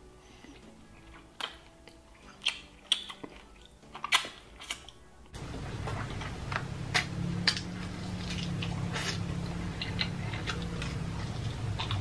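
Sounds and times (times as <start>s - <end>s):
chewing with soft clicks: 0.4s - 5.0s
low steady hum: 4.5s - 12.0s.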